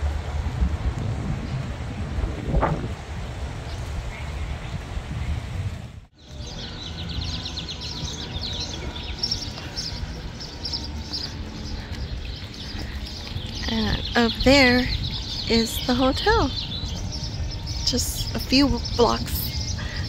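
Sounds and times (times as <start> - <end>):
wind rumbling on microphone: 0.0 - 20.0
small birds chirping: 6.2 - 20.0.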